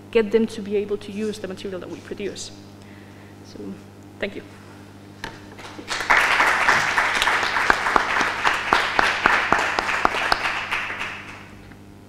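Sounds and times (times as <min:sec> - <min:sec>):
single loud claps: 0:05.2 - 0:11.6
audience applause: 0:05.6 - 0:11.6.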